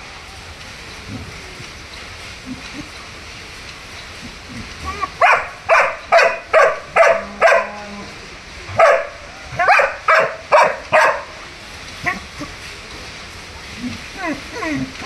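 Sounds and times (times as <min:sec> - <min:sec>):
dog barking: 0:05.2 - 0:07.9, 0:08.7 - 0:11.4.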